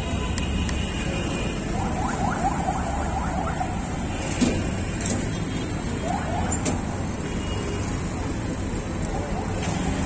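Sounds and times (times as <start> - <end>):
street traffic rumble: 0.0 - 10.0.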